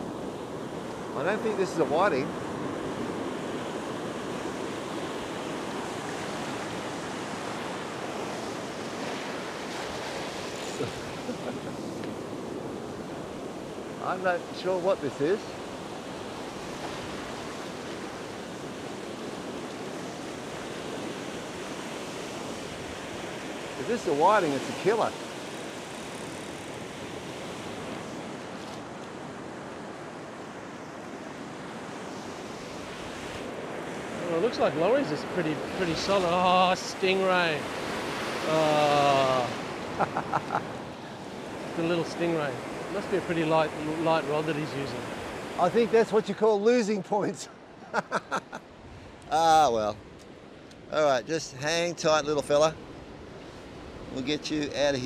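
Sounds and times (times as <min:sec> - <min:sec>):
ocean surf breaking: 0:00.0 - 0:55.0.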